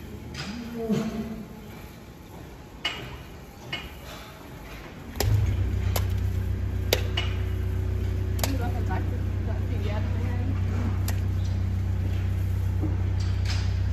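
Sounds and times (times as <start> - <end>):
low machine hum: 4.4 - 13.9.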